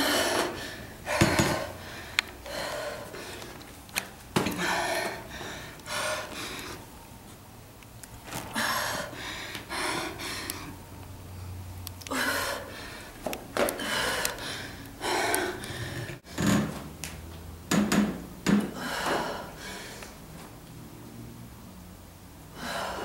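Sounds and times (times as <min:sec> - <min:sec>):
woman breathing hard: 0:00.0 - 0:03.7, 0:04.4 - 0:07.0, 0:08.5 - 0:16.5, 0:18.7 - 0:20.2, 0:22.5 - 0:23.0.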